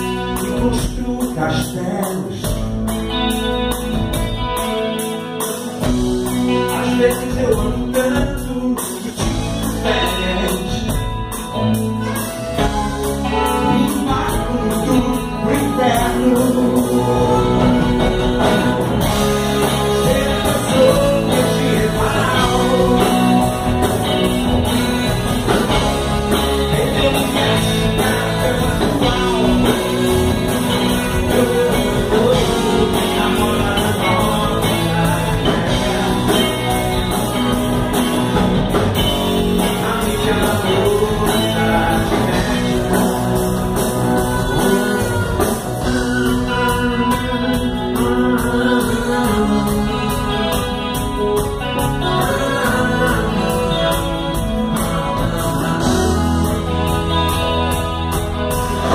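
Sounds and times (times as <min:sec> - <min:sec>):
rock band playing blues: 0:00.0 - 0:58.9
saxophone melody: 0:11.8 - 0:13.9.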